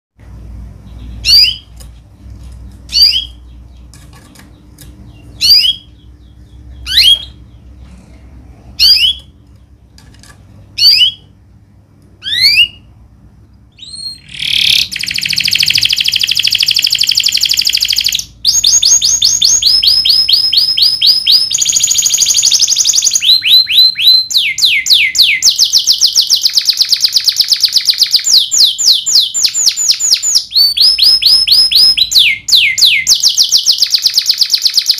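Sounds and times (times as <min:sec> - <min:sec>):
canary trilling song: 0:00.3 - 0:34.9
canary call notes: 0:00.9 - 0:01.8, 0:13.8 - 0:34.9.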